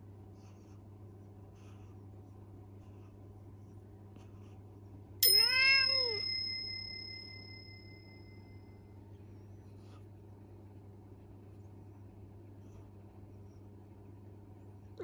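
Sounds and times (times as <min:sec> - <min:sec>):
bright chime sound effect: 0:05.2 - 0:08.1
cat meowing: 0:05.4 - 0:06.2.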